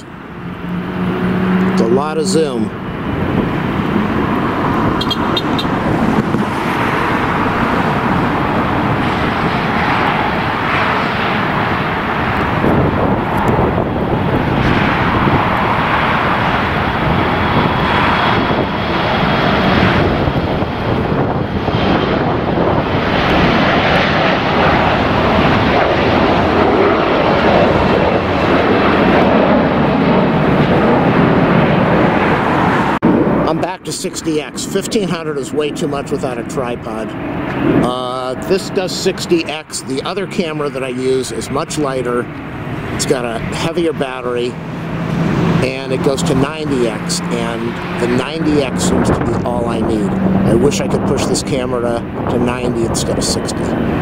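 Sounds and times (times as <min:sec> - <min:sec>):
jet engines rushing: 0:00.0 - 0:54.0.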